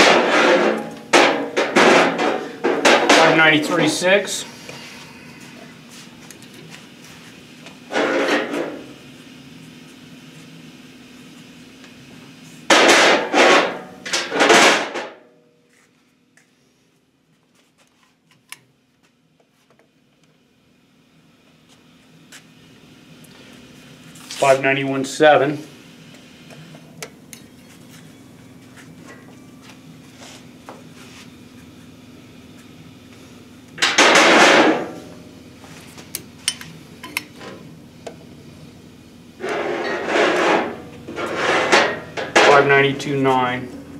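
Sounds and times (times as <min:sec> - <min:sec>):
faint steady hum: 0:00.0 - 0:43.9.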